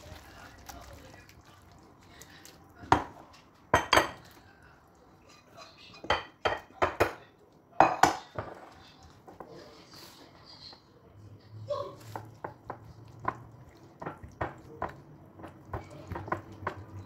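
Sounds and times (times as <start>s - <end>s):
ceramic dishes clinking on stone: 7.8s - 8.6s
spatula tapping bowl: 12.1s - 17.0s.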